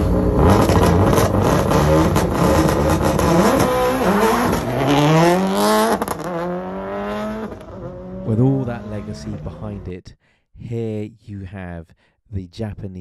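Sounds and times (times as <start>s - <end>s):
exhaust pops: 0.0s - 6.6s
rally car engine revving: 0.0s - 9.9s.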